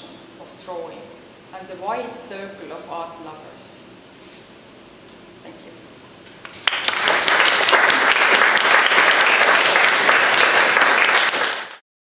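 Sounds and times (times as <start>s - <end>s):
audience applauding: 6.4s - 11.8s.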